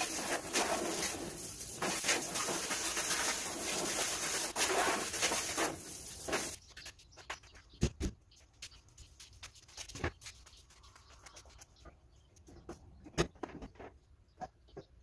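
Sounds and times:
garden hose spraying water: 0:00.0 - 0:06.6.

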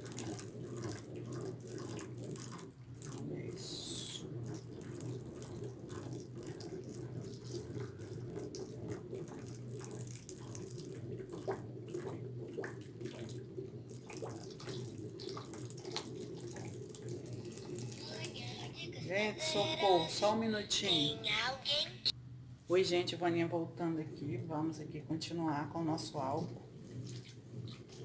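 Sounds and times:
liquid trickling from a bottle: 0:00.0 - 0:19.0, 0:26.5 - 0:28.0
spatula churning thick paste: 0:00.0 - 0:19.2.

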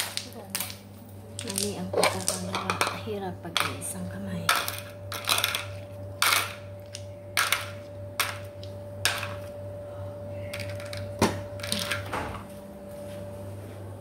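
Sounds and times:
low appliance hum: 0:00.0 - 0:14.0
kitchen things knocking and clinking: 0:01.4 - 0:09.5, 0:10.6 - 0:12.4.

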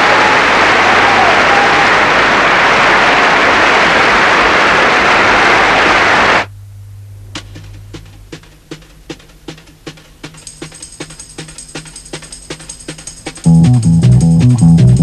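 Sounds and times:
loud static hiss: 0:00.0 - 0:10.2
low hum: 0:06.5 - 0:08.8.

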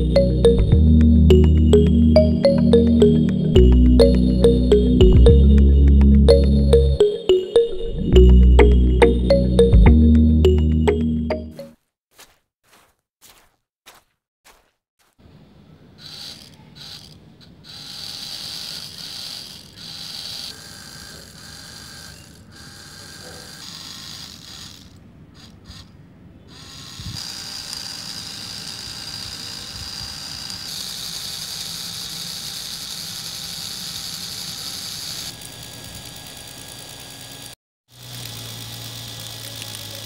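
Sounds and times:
toy motors whirring: 0:16.0 - 0:40.0.

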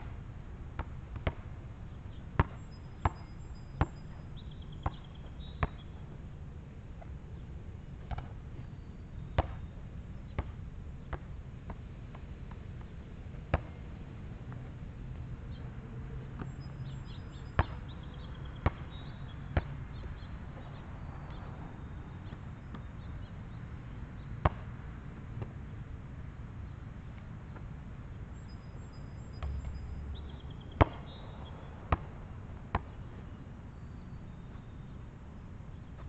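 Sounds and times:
basketball bouncing on asphalt: 0:00.8 - 0:01.6, 0:02.4 - 0:06.0, 0:08.1 - 0:08.3, 0:09.3 - 0:09.7, 0:10.3 - 0:13.8, 0:16.3 - 0:20.7, 0:24.4 - 0:25.6, 0:28.4 - 0:33.0.

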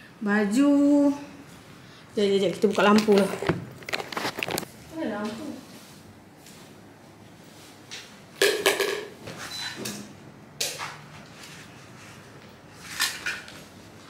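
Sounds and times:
hard objects clattering: 0:02.4 - 0:04.7.

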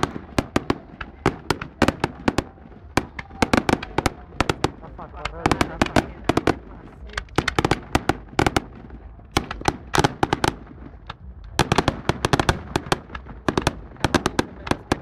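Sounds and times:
fireworks bangs: 0:00.0 - 0:15.0.

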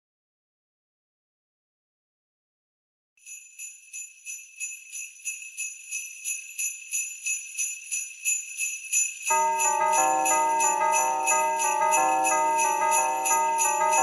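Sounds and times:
jingle bells shaken: 0:03.2 - 0:14.0.

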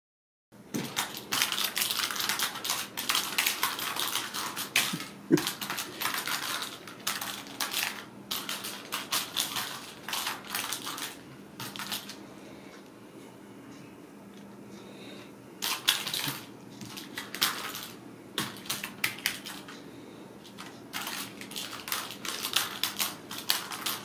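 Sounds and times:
toy ball rattling and clicking: 0:00.9 - 0:12.2, 0:20.4 - 0:24.0.

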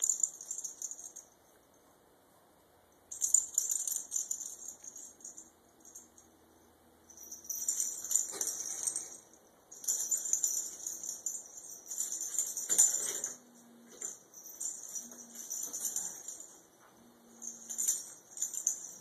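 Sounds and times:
small jingle bell rattling: 0:00.0 - 0:01.6, 0:03.1 - 0:19.0.

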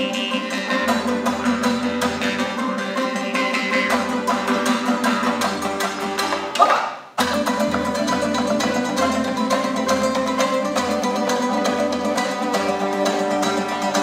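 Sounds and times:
rapid plucked strings: 0:00.0 - 0:14.0.

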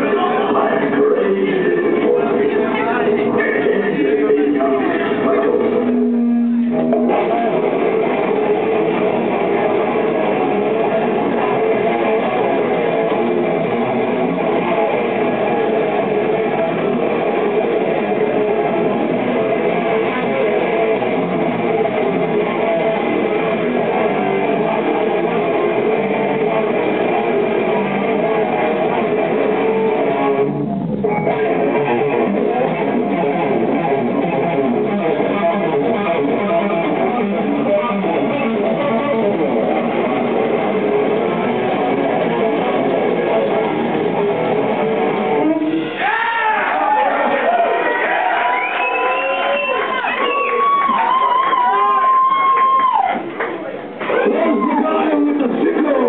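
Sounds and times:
bass guitar: 0:00.0 - 0:56.0
strummed electric guitar: 0:00.0 - 0:56.0.

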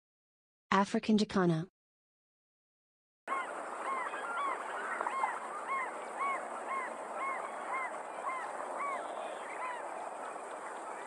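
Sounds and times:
bird calling with nasal notes: 0:03.3 - 0:11.0
steady outdoor hiss: 0:03.3 - 0:11.0.

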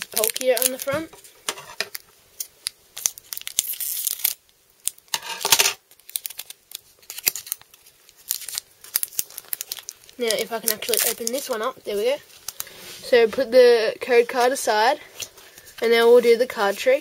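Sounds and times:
foil pack tearing: 0:00.0 - 0:00.9, 0:03.0 - 0:11.5
foil pack crinkling: 0:00.0 - 0:01.2, 0:01.9 - 0:13.0.

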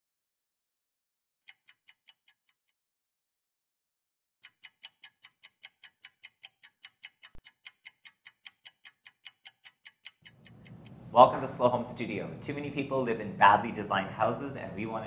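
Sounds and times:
clock ticking: 0:01.5 - 0:02.4, 0:04.4 - 0:11.0.

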